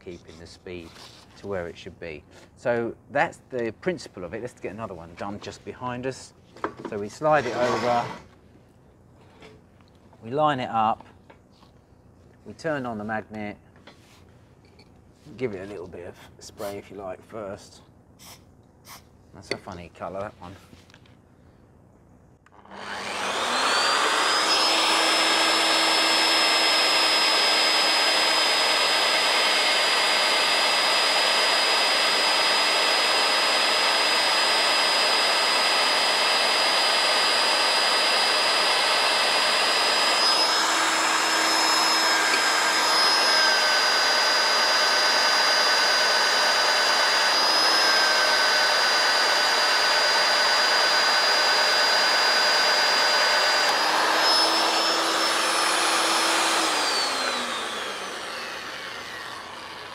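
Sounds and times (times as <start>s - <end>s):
magnetic drill cutting steel: 7.2s - 8.2s, 22.5s - 59.9s.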